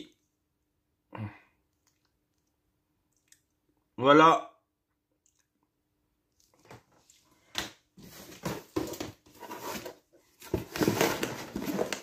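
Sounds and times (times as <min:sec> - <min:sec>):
cardboard and paper rustling: 0:08.0 - 0:12.0.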